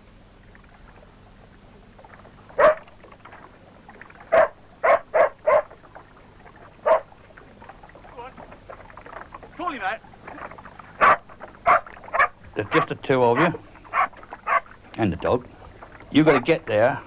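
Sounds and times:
dog barking: 2.6 - 2.8, 4.3 - 5.7, 6.8 - 7.1, 11.0 - 14.7.

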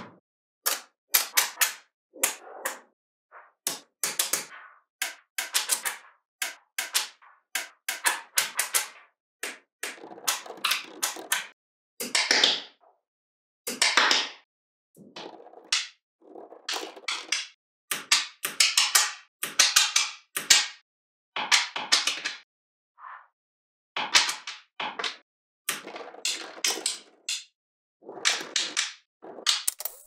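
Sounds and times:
magnetic balls clicking together: 3.7 - 11.5, 16.7 - 20.7, 28.2 - 30.0.

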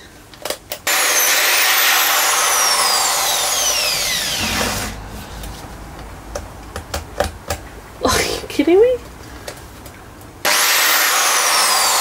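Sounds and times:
drill whining through steel: 0.8 - 5.0, 10.4 - 12.0.

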